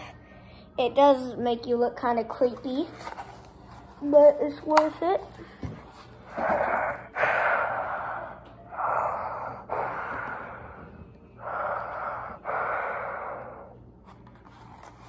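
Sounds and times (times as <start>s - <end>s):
person breathing through gas mask: 6.3s - 13.8s.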